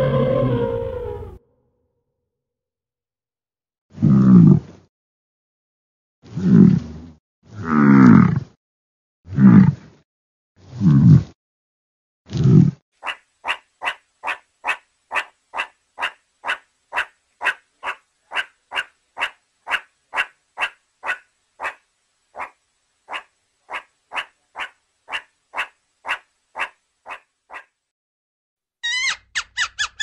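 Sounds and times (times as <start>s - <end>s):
meerkat short sharp calls: 23.1s - 27.7s.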